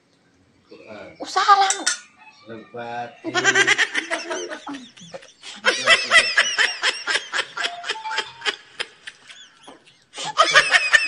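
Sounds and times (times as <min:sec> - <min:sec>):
high-pitched laughter: 0:03.3 - 0:11.0.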